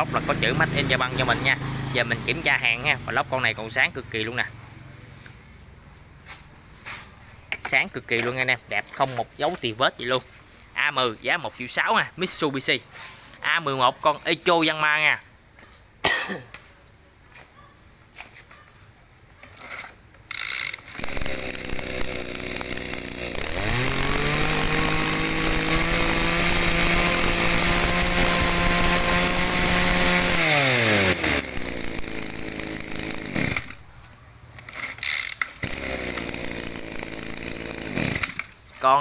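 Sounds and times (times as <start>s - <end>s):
brush cutter engine running: 0.0s - 3.7s, 20.3s - 33.8s, 34.7s - 38.6s.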